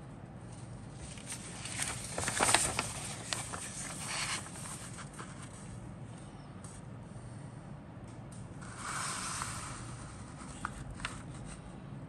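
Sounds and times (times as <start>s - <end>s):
paper rustling and crackling: 0.9s - 5.7s, 10.1s - 11.6s.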